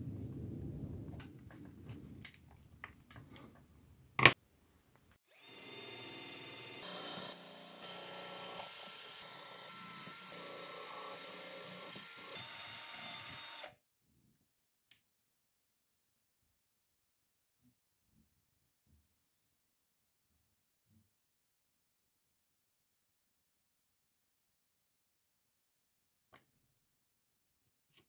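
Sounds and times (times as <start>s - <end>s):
drill with wire brush whining: 5.3s - 13.8s.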